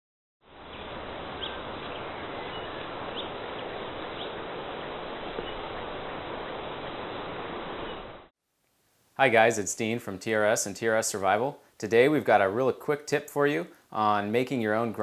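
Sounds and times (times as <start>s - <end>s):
bird chirps: 0.7s - 4.4s.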